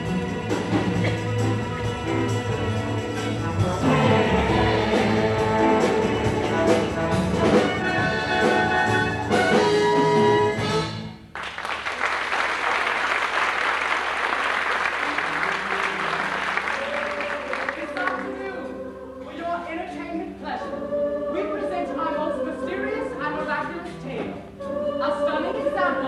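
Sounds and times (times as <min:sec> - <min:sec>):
brass-led orchestra playing: 0:00.0 - 0:11.2
audience applause: 0:11.3 - 0:18.3.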